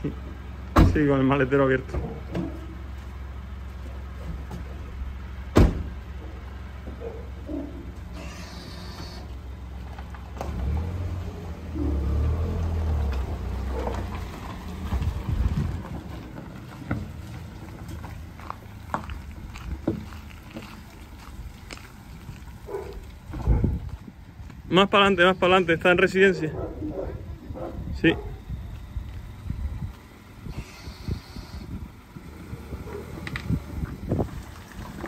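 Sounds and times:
car engine humming: 0.0 - 35.0
car door shutting: 5.5 - 6.0.

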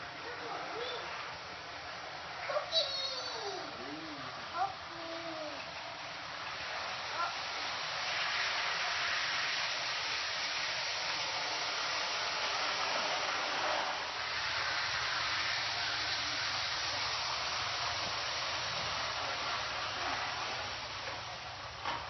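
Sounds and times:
toy train whirring: 0.0 - 22.0.

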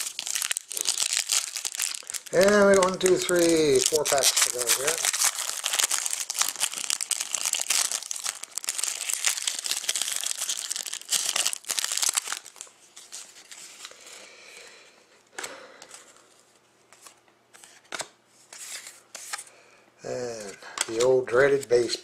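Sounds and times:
cards being handled: 0.0 - 13.9, 16.9 - 19.5, 20.1 - 22.0
foil wrapper crinkling and tearing: 0.0 - 14.0.

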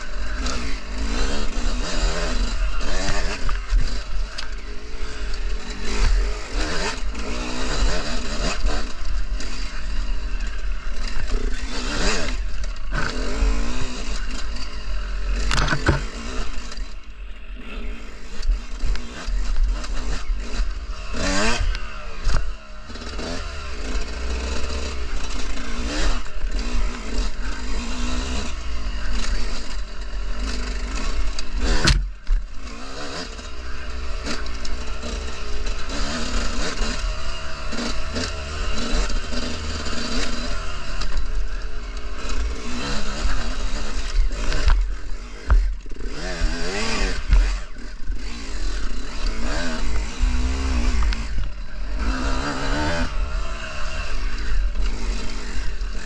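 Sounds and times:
bike scraping and clattering: 0.0 - 17.0
dirt bike engine revving: 0.0 - 56.0.

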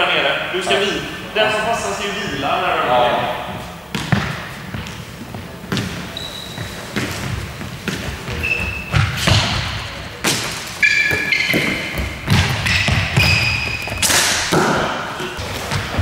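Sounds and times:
sneakers squeaking on floor: 3.5 - 16.0.

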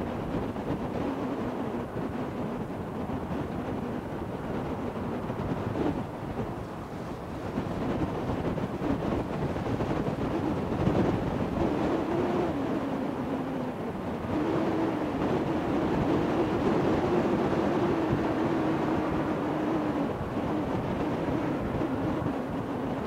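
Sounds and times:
wind noise on microphone: 0.0 - 23.0.

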